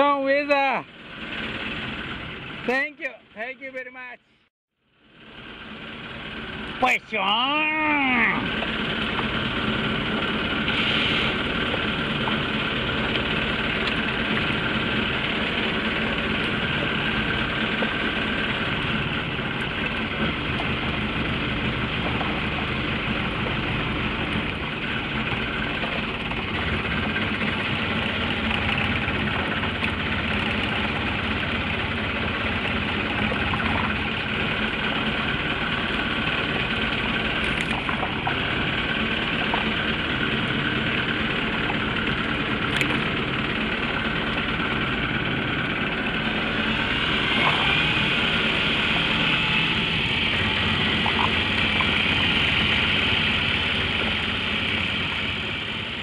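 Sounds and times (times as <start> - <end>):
sea: 0.0 - 4.0, 4.8 - 56.0
boat engine idling: 0.0 - 56.0
rain hiss: 10.5 - 11.8.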